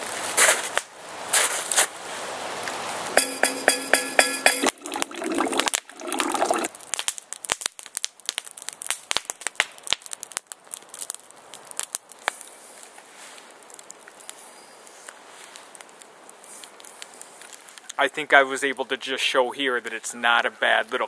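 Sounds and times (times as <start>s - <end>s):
campfire crackling and snapping: 0.0s - 3.2s, 4.8s - 19.0s
coffee poured into steel cup: 4.4s - 6.7s.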